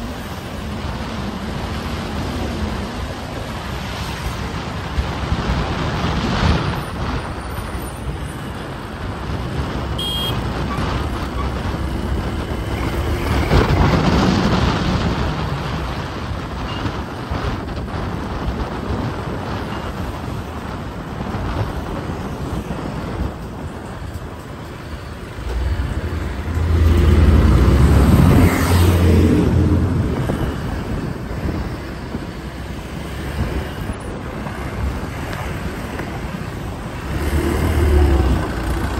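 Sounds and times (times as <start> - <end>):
road traffic: 0.0 - 38.9
short high beep: 10.0 - 10.4.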